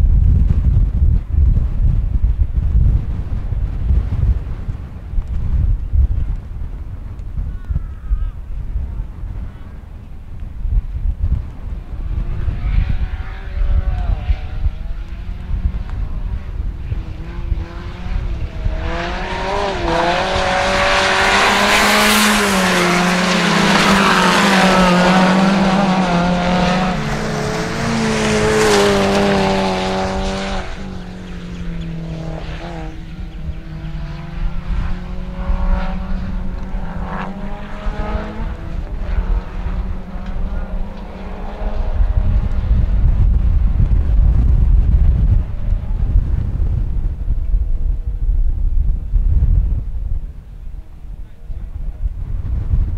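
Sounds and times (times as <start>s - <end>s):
race car engines revving: 11.4s - 48.2s.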